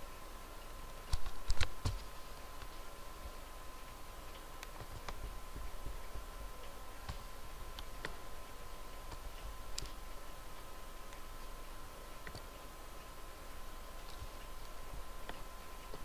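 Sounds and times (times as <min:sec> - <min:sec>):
faint hum with high tone: 0:00.0 - 0:16.0
computer mouse clicking: 0:07.0 - 0:08.2, 0:09.0 - 0:10.0, 0:12.2 - 0:12.6.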